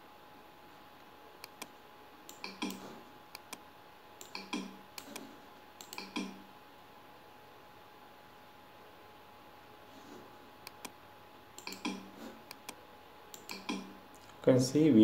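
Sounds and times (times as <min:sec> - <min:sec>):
faint electrical hum: 0:00.0 - 0:15.0
computer mouse clicking: 0:01.4 - 0:03.6, 0:04.2 - 0:06.4, 0:10.6 - 0:11.0, 0:11.6 - 0:14.4.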